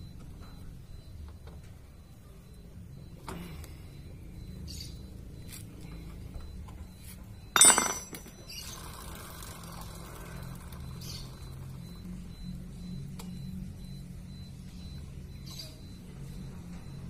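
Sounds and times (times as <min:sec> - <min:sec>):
loud metallic clink with ring: 0:07.6 - 0:08.2
metal chain clinks: 0:07.6 - 0:08.3.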